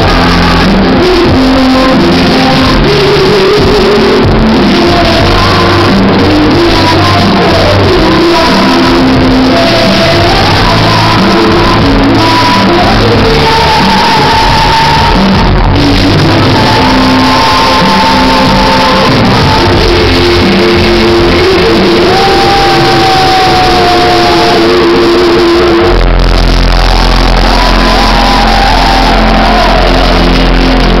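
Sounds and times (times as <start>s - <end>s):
ballad over a sound system: 0.0s - 31.0s
voices singing along: 0.0s - 31.0s
people shouting: 26.8s - 31.0s.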